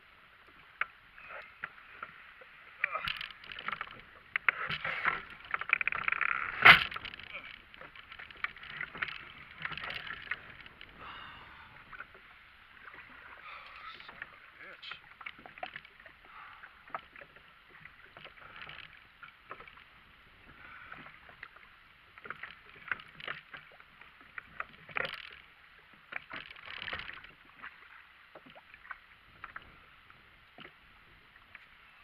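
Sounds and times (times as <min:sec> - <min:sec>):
knocks and clicks on kayak: 0:02.8 - 0:11.0.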